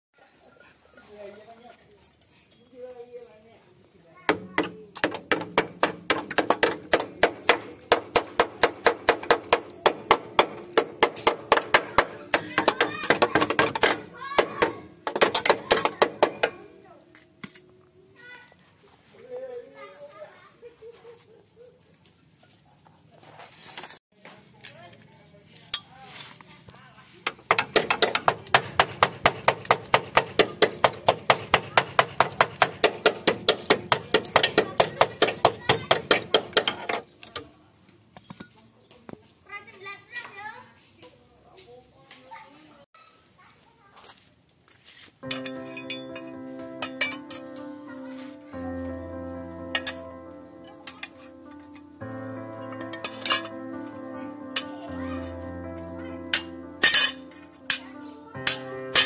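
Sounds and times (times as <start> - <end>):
hammer knocking on steel: 4.3 - 16.6, 27.3 - 37.0.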